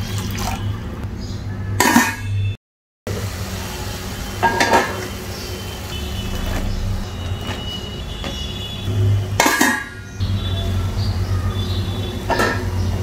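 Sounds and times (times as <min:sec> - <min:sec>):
metal pan and lid clinking: 0:01.8 - 0:02.4, 0:09.4 - 0:10.0, 0:12.3 - 0:12.7
steel lid clanking down: 0:04.4 - 0:05.1, 0:09.4 - 0:10.0, 0:12.3 - 0:12.8.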